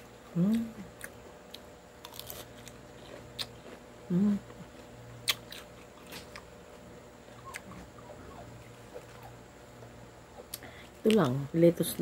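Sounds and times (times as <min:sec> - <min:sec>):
lettuce crunching and chewing: 0:00.0 - 0:06.6, 0:07.3 - 0:08.0
person humming: 0:00.3 - 0:00.9, 0:04.1 - 0:04.6.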